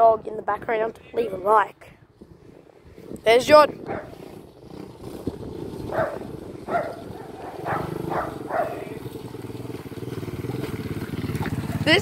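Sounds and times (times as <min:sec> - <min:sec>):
dirt bike engine: 0:02.2 - 0:12.0
dog barking: 0:03.9 - 0:04.2, 0:05.9 - 0:08.9.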